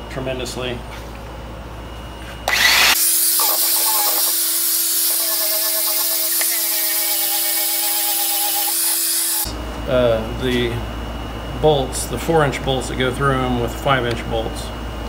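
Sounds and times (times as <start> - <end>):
electric abrasive tool whining: 2.5 - 9.5.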